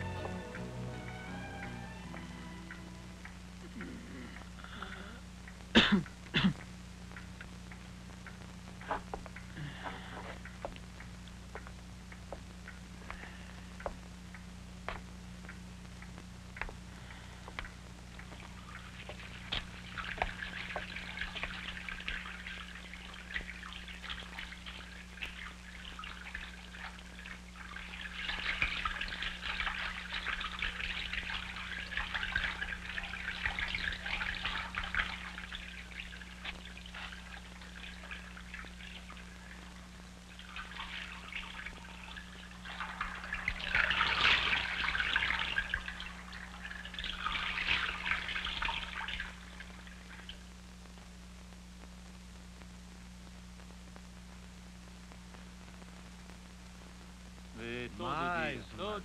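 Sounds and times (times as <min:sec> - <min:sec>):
steady low hum: 0:00.0 - 0:59.0
person washing face: 0:16.9 - 0:50.4
tap water splashing into basin: 0:17.5 - 0:39.2, 0:40.4 - 0:46.1.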